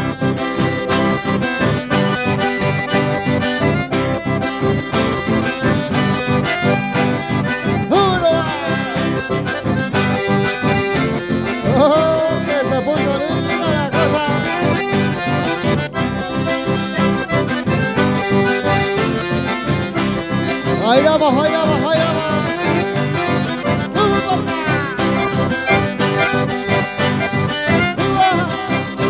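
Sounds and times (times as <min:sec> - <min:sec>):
accordion dance music: 0:00.0 - 0:29.0
person's voice: 0:07.9 - 0:09.2, 0:11.6 - 0:14.8, 0:20.8 - 0:22.9, 0:23.9 - 0:25.4, 0:28.0 - 0:28.9.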